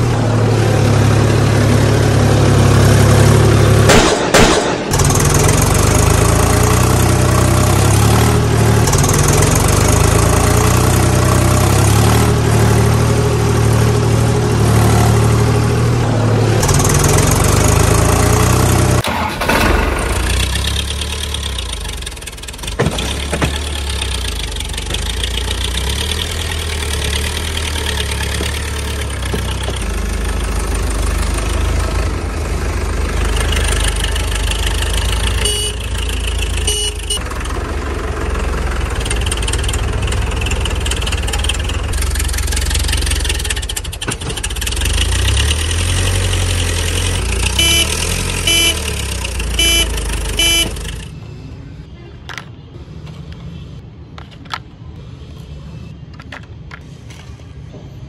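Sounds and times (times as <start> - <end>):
tractor engine rumbling: 0.0 - 55.3
short horn toots: 35.4 - 35.9, 36.6 - 37.2, 47.5 - 49.0, 49.6 - 50.8.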